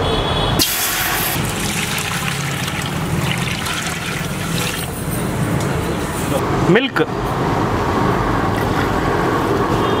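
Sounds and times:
water pouring into steel vessel: 0.6s - 5.2s
water splashing: 0.9s - 5.1s.

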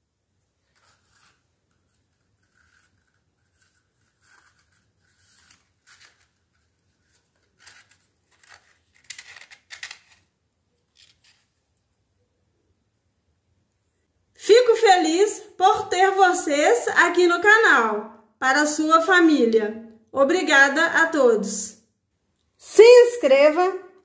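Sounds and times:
paper rustling and crinkling: 0.6s - 11.8s.

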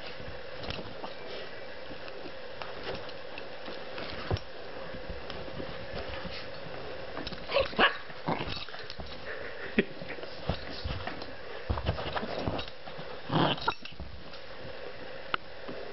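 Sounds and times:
small dog barking: 7.5s - 8.1s.

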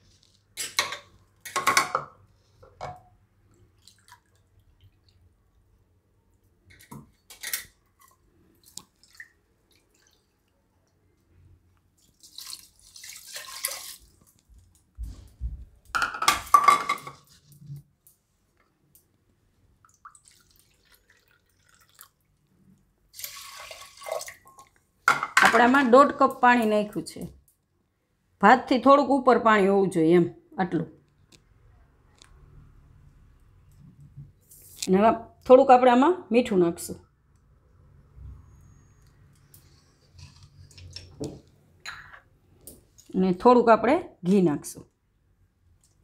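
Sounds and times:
water pouring into pot: 12.0s - 14.4s, 19.9s - 22.4s, 23.1s - 24.8s.

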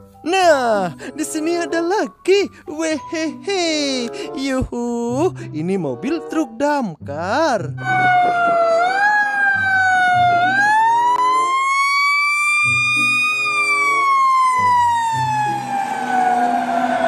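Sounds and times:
fire engine siren wailing: 7.8s - 17.0s.

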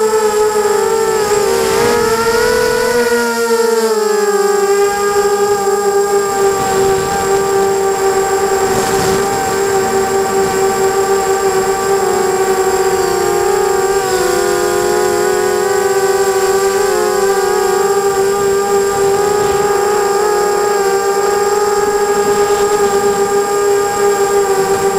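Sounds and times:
quadcopter propellers whining: 0.0s - 24.9s.

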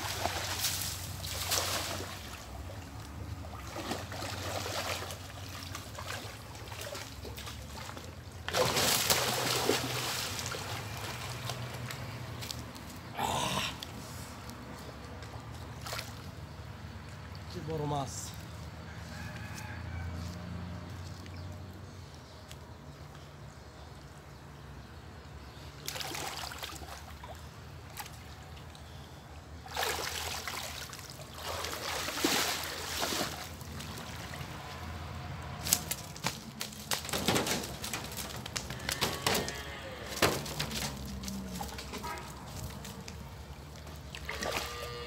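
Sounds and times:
water sloshing and splashing: 0.0s - 13.0s, 15.0s - 17.5s, 25.8s - 29.0s, 29.6s - 45.0s
sharp slaps and knocks: 35.6s - 39.4s, 40.1s - 42.0s.

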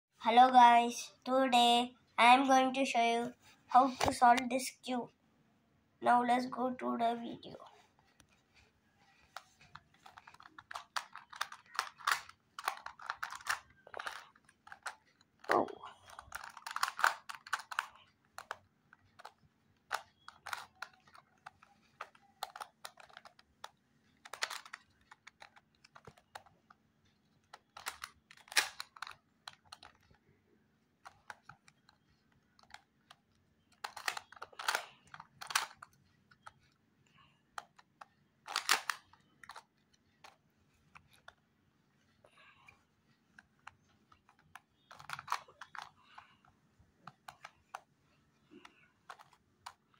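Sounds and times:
puzzle pieces clicking: 9.2s - 26.8s, 27.4s - 30.2s, 31.0s - 36.6s, 37.5s - 40.4s, 43.4s - 46.3s, 47.1s - 49.9s.

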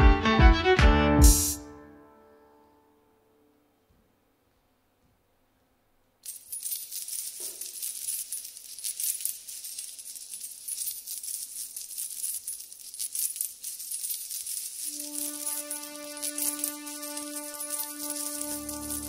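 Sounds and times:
jingling rattling percussion: 6.2s - 19.0s.

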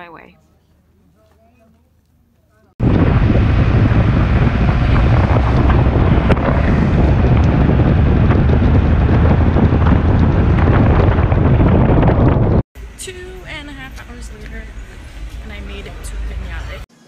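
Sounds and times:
wind buffeting microphone: 2.8s - 12.7s.

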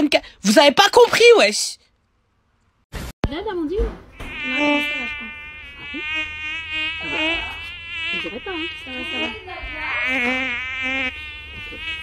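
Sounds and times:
flies buzzing: 4.2s - 12.0s.

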